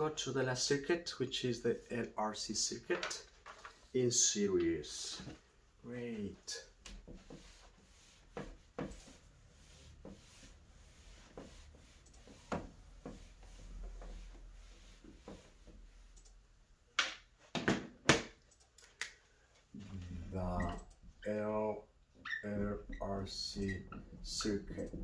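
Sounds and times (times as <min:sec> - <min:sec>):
eraser wiping whiteboard: 0:06.5 - 0:16.1.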